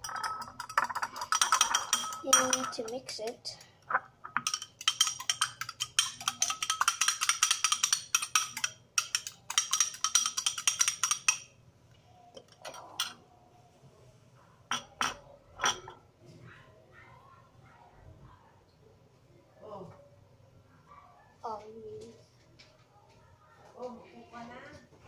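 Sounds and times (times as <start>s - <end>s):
fork clinking against bowl: 0.0s - 3.0s, 3.9s - 11.5s.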